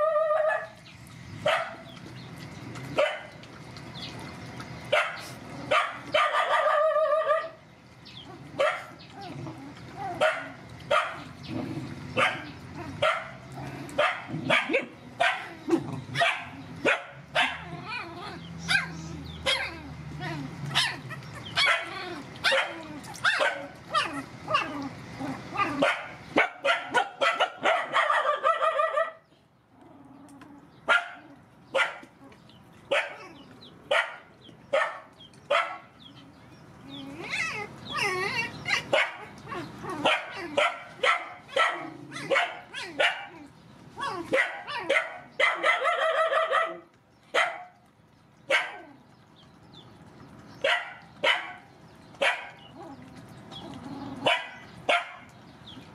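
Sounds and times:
puppies yelping and whining: 0:00.0 - 0:03.2, 0:03.8 - 0:29.2, 0:35.4 - 0:46.6, 0:52.1 - 0:55.0.

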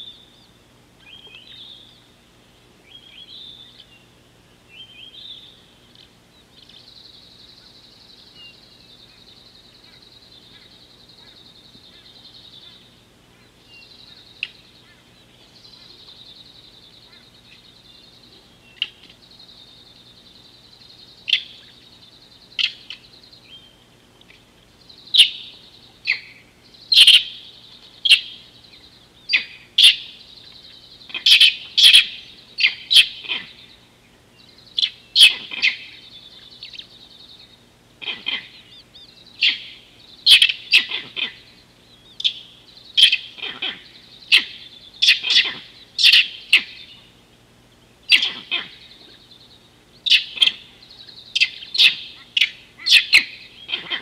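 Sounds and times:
high-pitched bird chorus: 0:00.0 - 0:02.1, 0:02.8 - 0:54.0
sharp short bird calls: 0:25.1 - 0:33.8, 0:34.7 - 0:47.1, 0:48.1 - 0:54.0.

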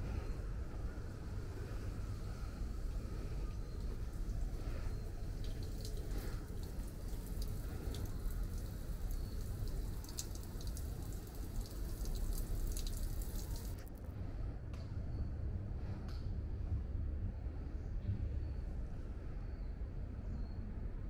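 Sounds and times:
water dripping: 0:00.7 - 0:13.9.

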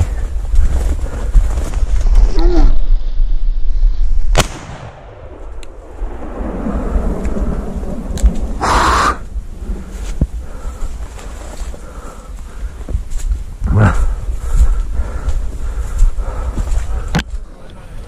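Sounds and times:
rustling through dry brush: 0:00.0 - 0:03.0, 0:07.7 - 0:18.0
shotgun shot: 0:04.3 - 0:05.5
loud rush of noise: 0:05.2 - 0:10.1.

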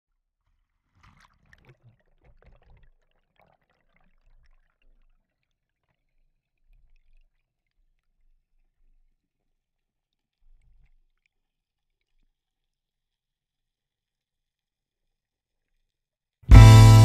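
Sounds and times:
water splashing and bubbling: 0:00.5 - 0:08.2.

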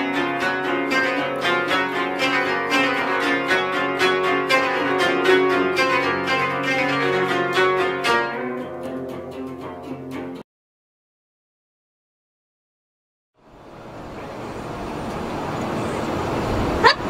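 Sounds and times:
koto plucked notes: 0:00.0 - 0:10.4.

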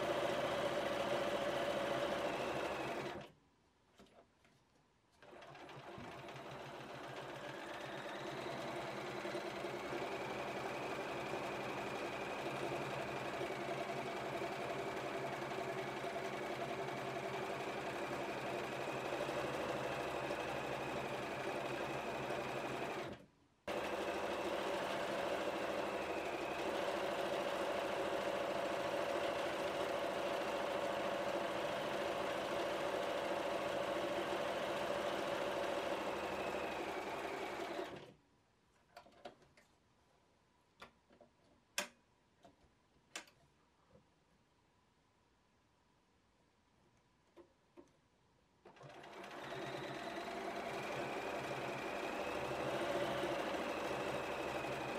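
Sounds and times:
sewing machine stitching: 0:00.0 - 0:03.3, 0:05.2 - 0:38.2, 0:48.6 - 0:54.9.

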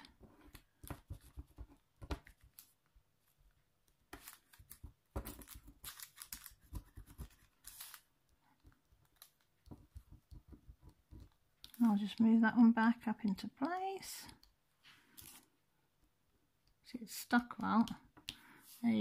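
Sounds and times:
plastic pen tapping: 0:00.4 - 0:02.5, 0:09.5 - 0:12.2.

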